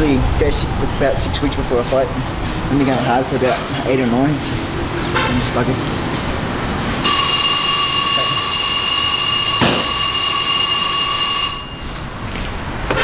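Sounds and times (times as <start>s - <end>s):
shrill steady tone: 7.0s - 12.1s.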